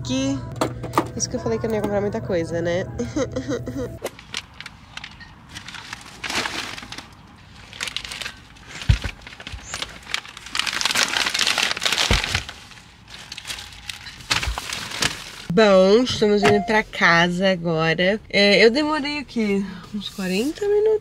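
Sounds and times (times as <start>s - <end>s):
bags crinkling and rustling: 4.0s - 15.5s.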